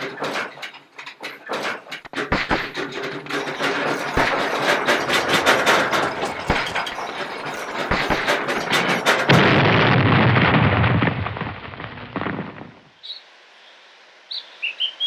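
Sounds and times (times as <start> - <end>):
steam tractor clattering: 0.0 - 11.4.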